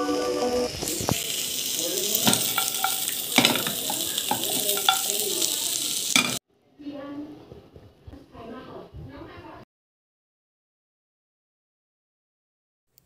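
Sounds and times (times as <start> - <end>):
chicken sizzling in a frying pan: 0.0 - 6.4
utensil knocking and scraping pan: 2.2 - 5.1.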